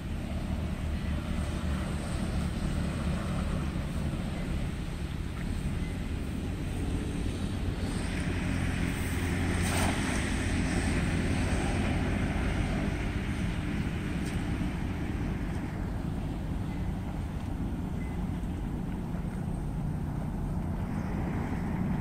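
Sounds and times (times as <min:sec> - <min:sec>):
low rumble: 0:00.0 - 0:22.0
cast net splashing into pond: 0:07.9 - 0:13.4.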